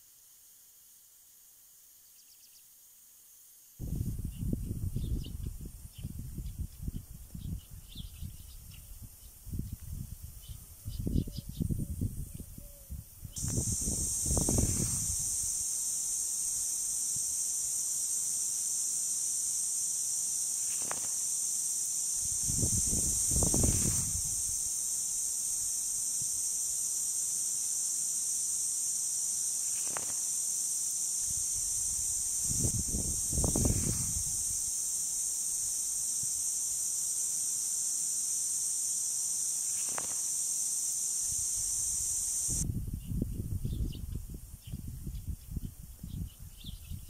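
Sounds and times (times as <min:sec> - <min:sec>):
sprinkler heads hissing: 0:13.3 - 0:42.6.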